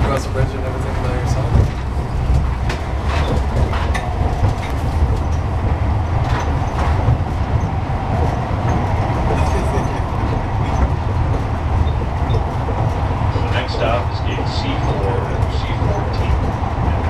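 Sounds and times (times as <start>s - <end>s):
tram wheels rumbling on rails: 0.0s - 17.0s.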